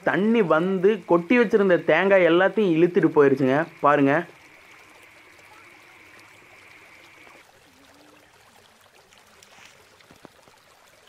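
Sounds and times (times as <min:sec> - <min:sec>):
high steady tone: 0:00.0 - 0:07.4
running rainwater hiss: 0:00.0 - 0:11.0.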